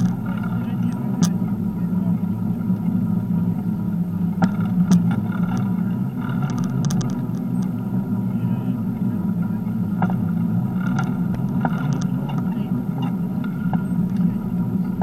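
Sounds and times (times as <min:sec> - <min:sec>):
bicycle clicks and rattles: 0:00.0 - 0:01.4, 0:04.4 - 0:07.9
bicycle rolling rumble: 0:00.0 - 0:15.0.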